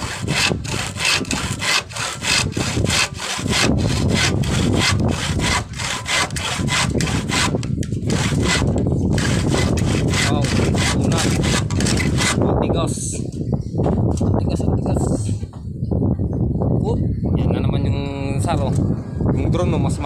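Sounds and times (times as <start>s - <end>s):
hand saw cutting wood: 0.0s - 12.4s.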